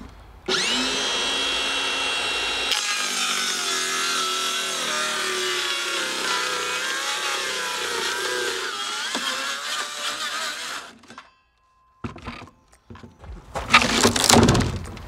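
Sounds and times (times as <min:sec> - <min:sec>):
circular saw cutting wood: 0:00.5 - 0:11.1.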